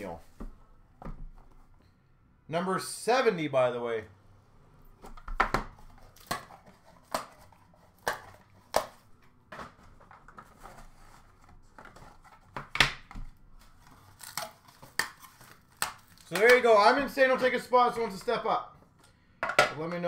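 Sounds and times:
cards rustling and scraping: 0:05.7 - 0:12.7, 0:13.4 - 0:17.2.

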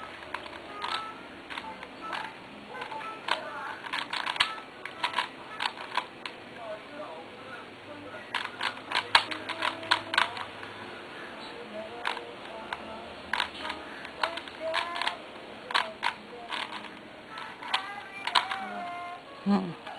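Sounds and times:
puzzle cube layers clicking: 0:00.2 - 0:06.4, 0:08.3 - 0:10.5, 0:12.0 - 0:18.8.

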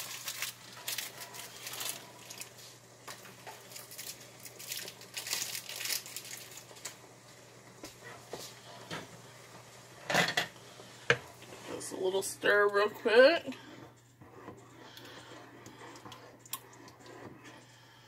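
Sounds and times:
plastic wrapper crinkling: 0:00.0 - 0:02.6, 0:03.2 - 0:07.0.

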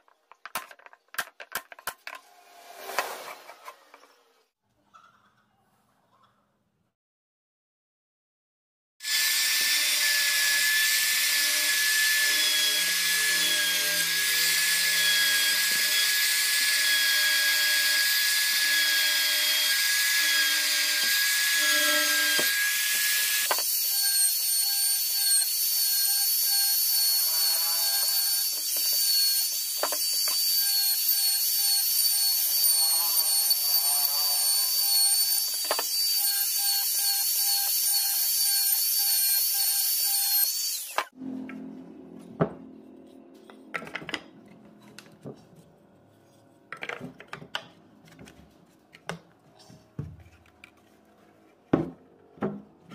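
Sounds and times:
router whining while cutting wood: 0:09.0 - 0:41.2.

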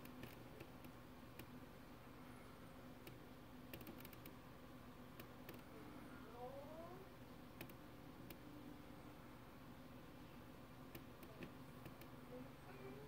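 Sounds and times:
low steady hum: 0:00.0 - 0:13.0
faint clicks: 0:10.9 - 0:12.2.

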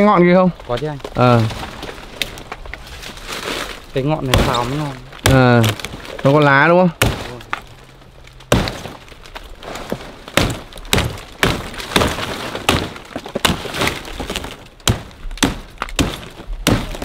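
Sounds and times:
blade chopping palm: 0:04.2 - 0:06.0, 0:07.0 - 0:07.6, 0:08.5 - 0:09.1, 0:09.8 - 0:17.0.

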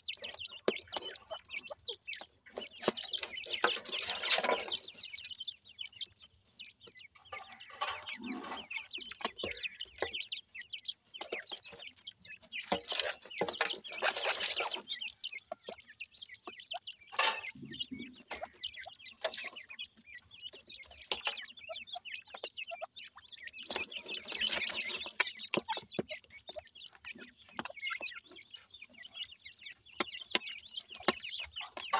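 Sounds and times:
chicks cheeping: 0:00.0 - 0:31.9
scratching in dry soil: 0:02.5 - 0:06.2, 0:11.1 - 0:15.7, 0:23.5 - 0:26.4.

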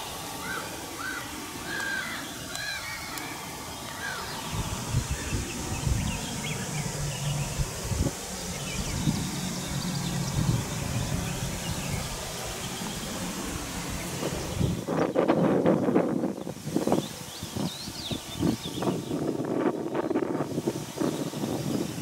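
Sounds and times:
small birds chirping: 0:00.0 - 0:15.6, 0:16.2 - 0:22.0
faint low hum: 0:03.2 - 0:16.4
uneven low rumble: 0:04.3 - 0:16.3.

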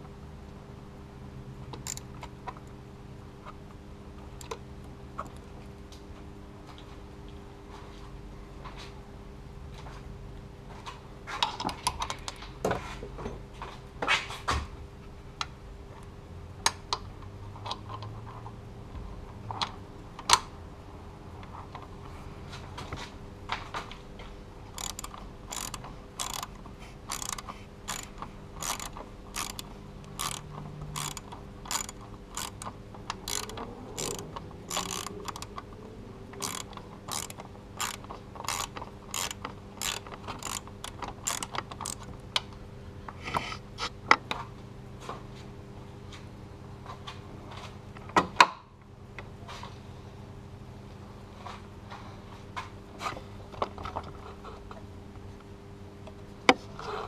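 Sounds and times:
socket ratchet clicking: 0:01.8 - 0:02.1, 0:24.8 - 0:35.6, 0:36.4 - 0:42.1.

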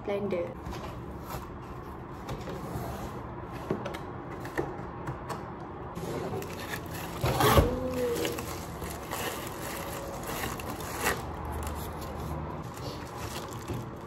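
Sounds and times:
packaging clicks and scrapes: 0:06.0 - 0:14.0
packaging rustle: 0:06.0 - 0:14.0.

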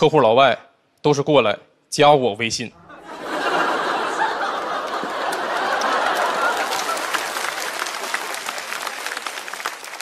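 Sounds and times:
audience laughing: 0:02.8 - 0:10.0
audience applauding: 0:03.1 - 0:10.0.

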